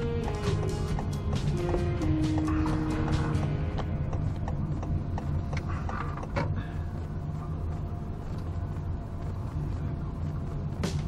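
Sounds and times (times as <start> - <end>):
car rumble from inside cabin: 2.6 - 11.0.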